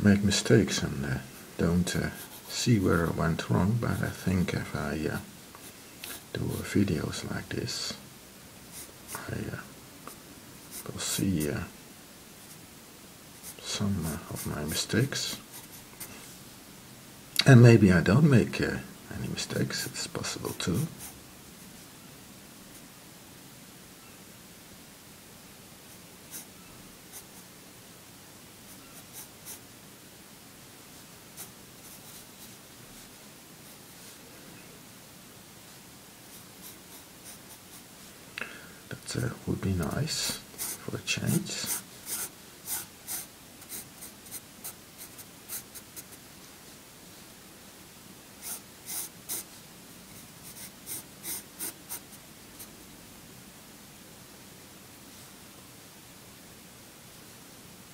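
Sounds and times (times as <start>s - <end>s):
pencil sketching on paper: 40.2s - 46.1s, 48.4s - 49.5s, 50.4s - 52.0s.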